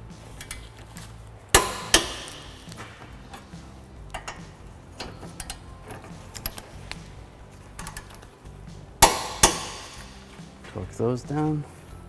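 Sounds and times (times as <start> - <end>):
torque wrench clicking: 0.4 - 0.8, 1.6 - 3.5, 4.1 - 7.0, 7.8 - 8.3
wrench metallic ticks and taps: 4.1 - 7.0.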